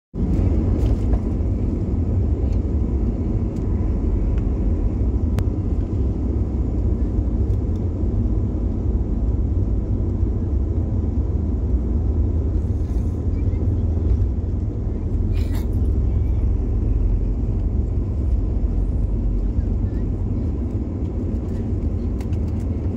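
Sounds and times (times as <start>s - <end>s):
jet engines rumbling: 0.2s - 22.9s.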